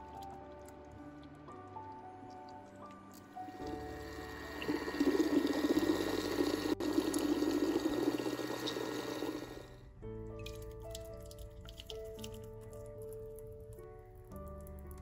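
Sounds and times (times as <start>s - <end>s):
thick soup pouring and sloshing: 0.0s - 15.0s.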